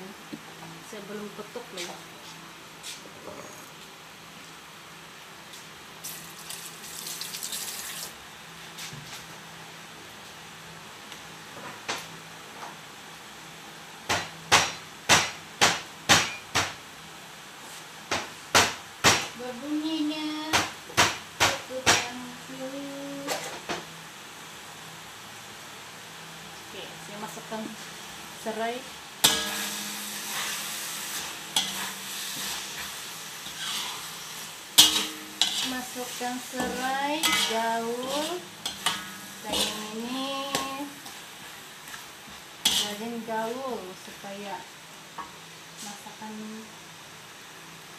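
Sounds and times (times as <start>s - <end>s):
food sizzling in a pot: 5.5s - 12.2s, 13.2s - 47.9s
lemongrass being pounded: 14.1s - 16.8s, 18.1s - 19.3s.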